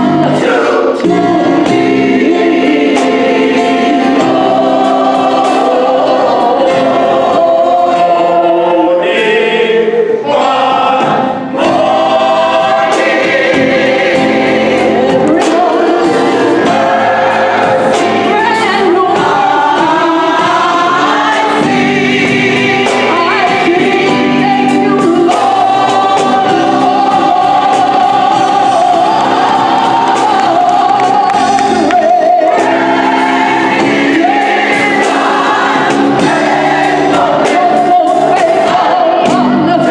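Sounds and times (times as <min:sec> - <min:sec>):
drum kit: 0:00.0 - 0:09.6, 0:10.3 - 0:39.9
choir singing: 0:00.0 - 0:39.9
bass guitar: 0:11.0 - 0:39.9
soloist singing: 0:18.3 - 0:35.8.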